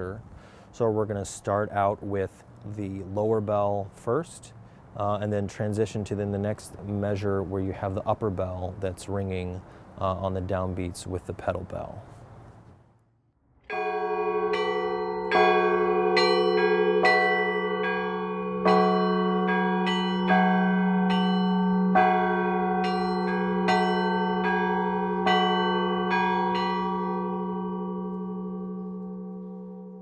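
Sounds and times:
deep bell hum: 13.7 - 30.0
small bells struck: 13.7 - 30.0.

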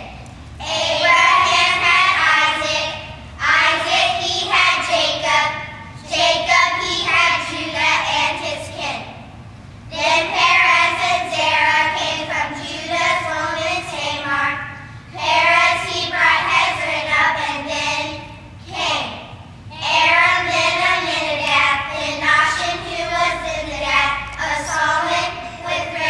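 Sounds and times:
young children singing in unison: 0.0 - 8.8, 9.9 - 26.0.

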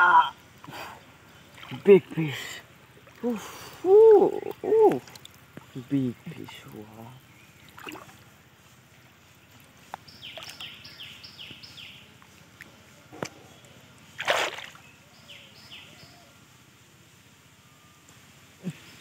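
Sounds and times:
water sloshing and splashing: 0.6 - 7.0, 7.6 - 8.4, 9.6 - 10.6, 14.2 - 14.8
bird chirping: 3.7 - 16.4.

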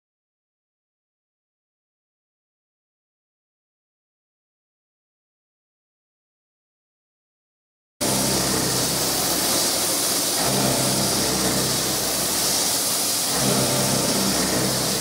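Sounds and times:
milling machine hum and hiss: 8.0 - 15.0.

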